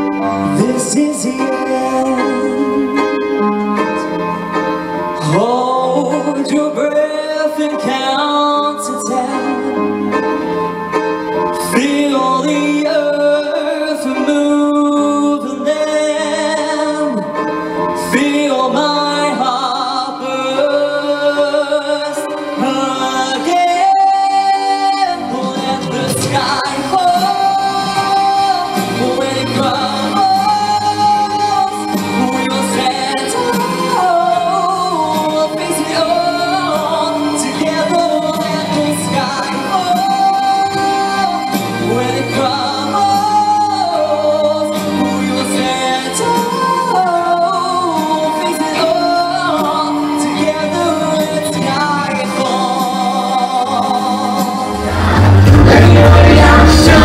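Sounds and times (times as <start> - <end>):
man singing a slow ballad: 0.0 - 4.2, 5.2 - 10.2, 11.5 - 57.0
musical accompaniment: 0.0 - 57.0.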